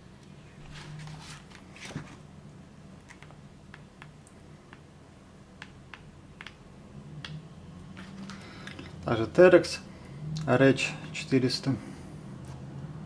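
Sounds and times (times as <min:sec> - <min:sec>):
book pages turning: 0:00.6 - 0:02.2.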